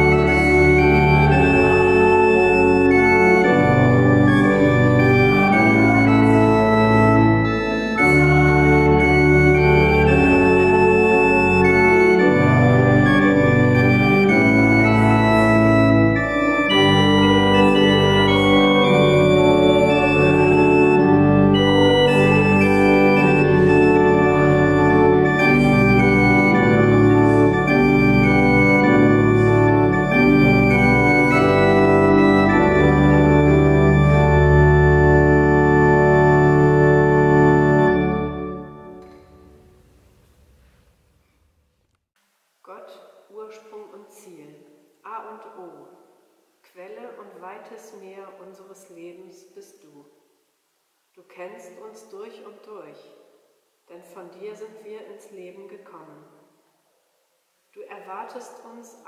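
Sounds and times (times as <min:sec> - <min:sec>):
pipe organ playing slow chords: 0:00.0 - 0:41.1.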